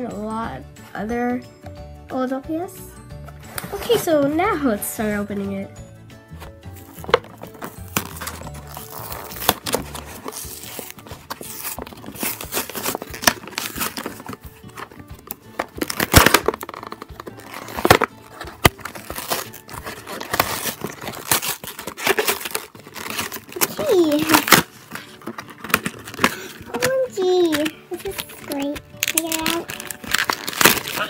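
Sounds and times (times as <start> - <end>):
music: 0.0 - 31.0
toy packaging tearing and crinkling: 6.8 - 31.0.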